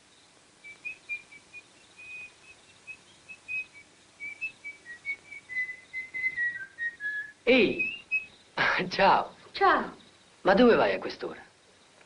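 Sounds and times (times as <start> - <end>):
person whistling a tune: 3.4 - 8.3.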